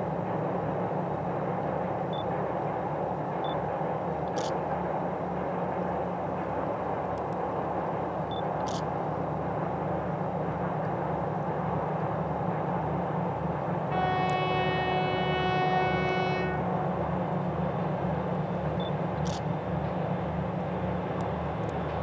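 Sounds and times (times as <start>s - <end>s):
diesel locomotive engine: 0.0s - 22.0s
locomotive horn blast: 13.9s - 17.3s.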